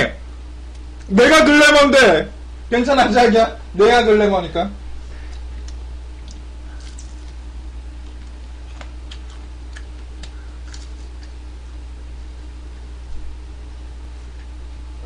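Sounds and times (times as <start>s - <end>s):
low electrical hum: 0.0s - 15.0s
eating clicks and smacks: 5.3s - 11.4s.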